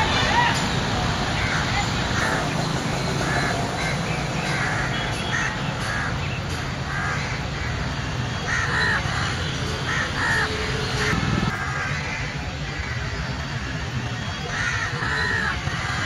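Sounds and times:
crows cawing: 1.4s - 2.5s, 3.2s - 7.8s, 8.5s - 13.2s, 14.5s - 16.0s.

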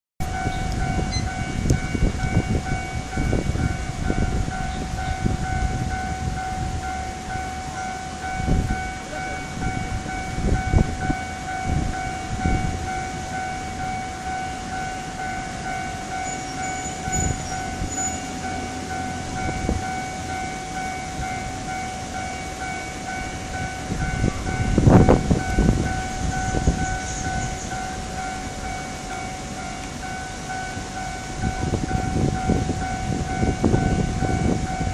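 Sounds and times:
gusts of low rumble: 0.2s - 14.4s, 23.1s - 29.3s, 31.3s - 34.9s
pulsing high warning tone: 0.2s - 34.9s.

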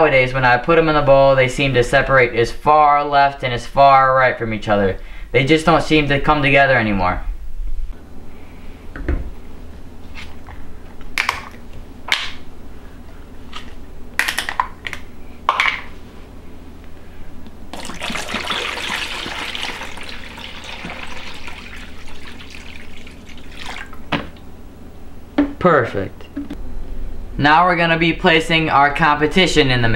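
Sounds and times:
liquid pouring into bowl: 17.7s - 24.2s.

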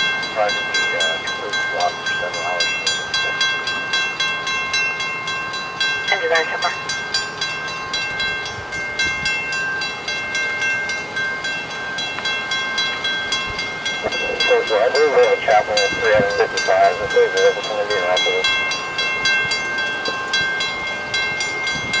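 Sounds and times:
railroad crossing bell ringing: 0.0s - 22.0s
person speaking: 0.4s - 3.0s, 6.1s - 6.8s, 14.1s - 18.5s.

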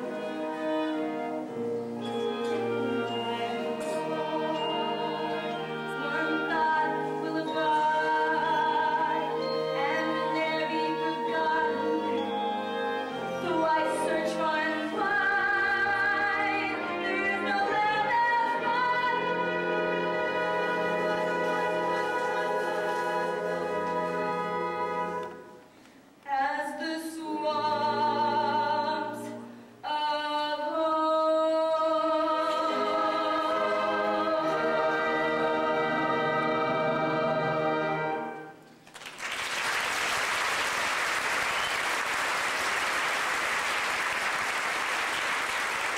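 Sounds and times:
women singing with accompaniment: 2.5s - 25.2s, 26.2s - 38.0s
audience applause: 38.8s - 45.9s.

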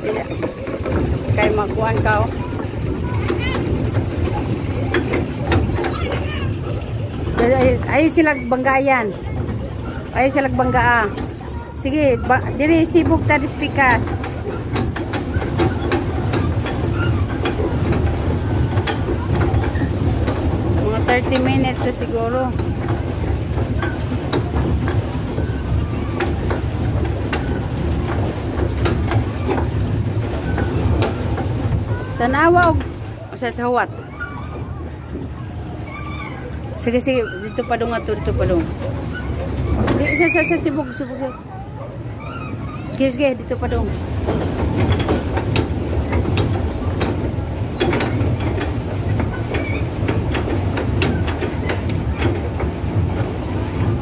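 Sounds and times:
pedal drive clicking and knocking: 0.0s - 41.2s, 42.9s - 54.0s.

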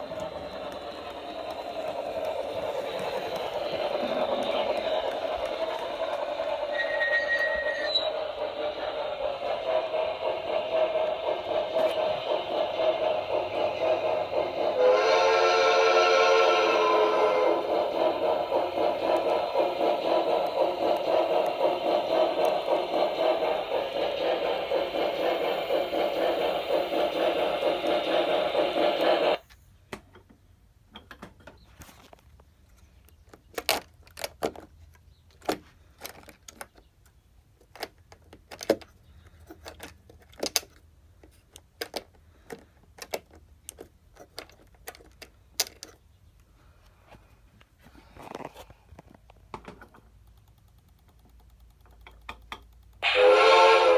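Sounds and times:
steam locomotive sounds from small speaker: 0.0s - 29.5s, 53.0s - 53.9s
faint clicks and taps: 49.0s - 53.0s.

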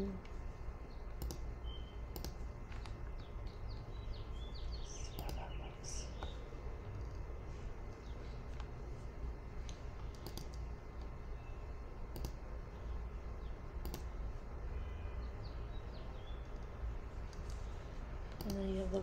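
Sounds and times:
steady low hum: 0.0s - 19.0s
computer mouse clicking: 1.1s - 1.5s, 2.1s - 3.9s, 5.1s - 5.6s, 9.6s - 11.2s, 12.1s - 12.4s, 13.8s - 14.1s, 16.4s - 17.6s, 18.3s - 18.7s.

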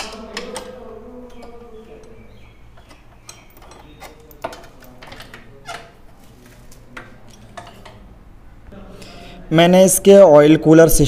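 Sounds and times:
spanner clicks and knocks on metal: 0.0s - 6.0s.

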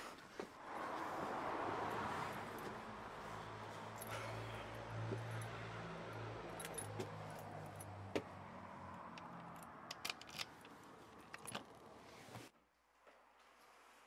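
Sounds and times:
keys jangling at door lock: 6.5s - 8.0s, 9.3s - 11.8s.

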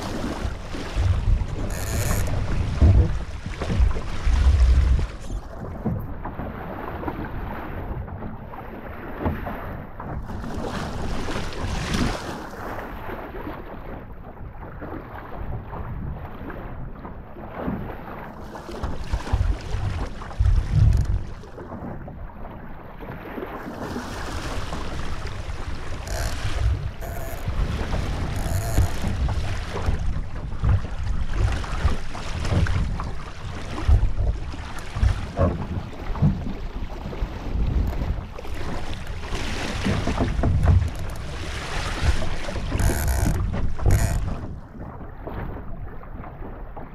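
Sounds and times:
water rushing: 0.0s - 5.7s, 23.9s - 44.5s
wind buffeting microphone: 0.0s - 8.3s, 18.8s - 22.2s.

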